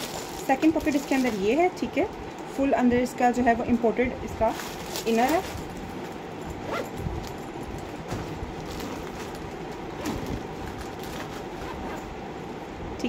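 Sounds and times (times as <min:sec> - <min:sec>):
steady background hum: 0:00.0 - 0:13.0
backpack rustling and knocking: 0:04.5 - 0:12.1.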